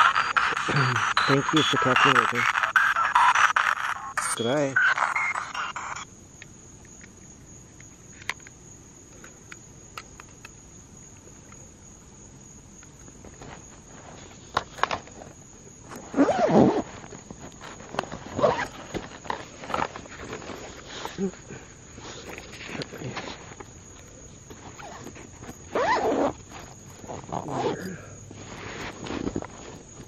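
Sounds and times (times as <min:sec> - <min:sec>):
faint high insect drone: 0:00.0 - 0:30.0
rustles: 0:12.8 - 0:30.0.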